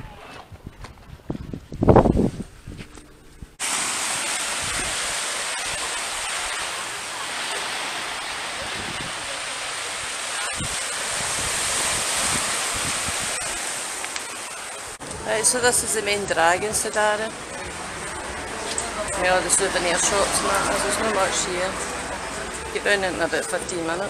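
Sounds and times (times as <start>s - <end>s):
small waves washing on sand: 3.6s - 17.4s.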